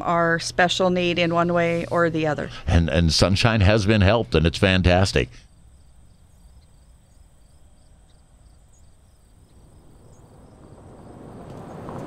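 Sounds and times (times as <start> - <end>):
background hiss: 0.0 - 12.0
faint high chirping: 5.4 - 11.1.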